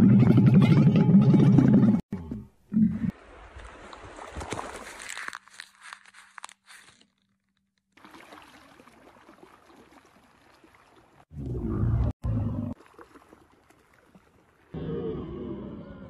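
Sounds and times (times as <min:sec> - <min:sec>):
floodwater flowing: 0:03.1 - 0:05.4, 0:07.9 - 0:11.3, 0:12.7 - 0:14.8.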